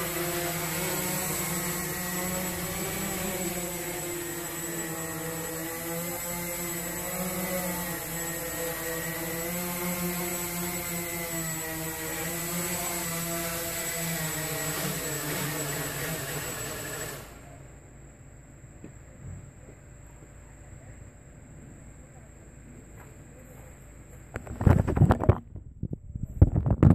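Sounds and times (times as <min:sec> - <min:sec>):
quadcopter propellers whining: 0:00.0 - 0:17.8.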